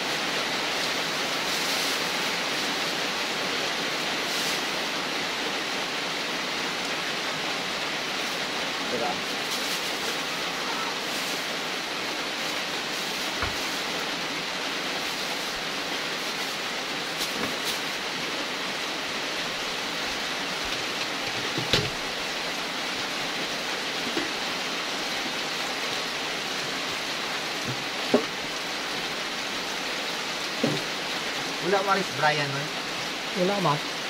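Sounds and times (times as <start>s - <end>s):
falling water hissing: 0.0s - 34.0s.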